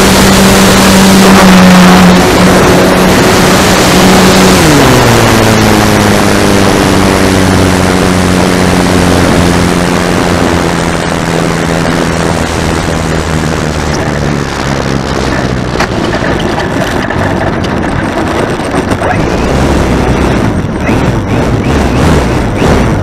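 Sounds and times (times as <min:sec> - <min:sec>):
model plane propeller and motor drone: 0:00.0 - 0:23.0
wind rushing over microphone: 0:00.0 - 0:23.0.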